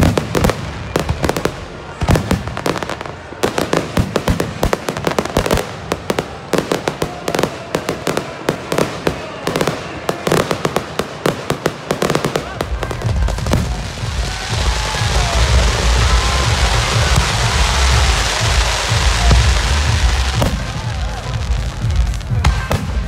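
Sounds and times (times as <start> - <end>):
fireworks crackling and popping: 0.0 - 23.0
loud firework bangs: 0.0 - 23.0.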